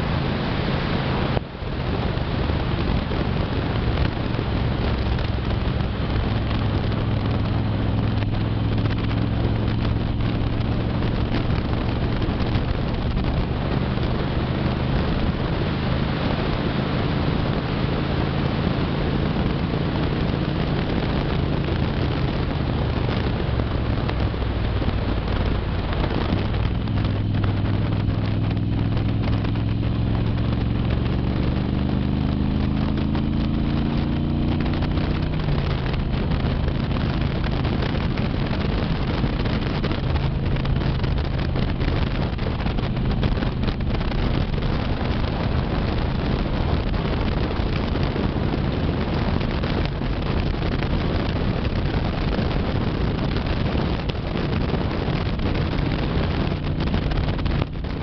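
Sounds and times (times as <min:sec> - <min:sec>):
motorcycle engine running: 0:00.0 - 0:58.0
wind noise on microphone: 0:00.0 - 0:58.0.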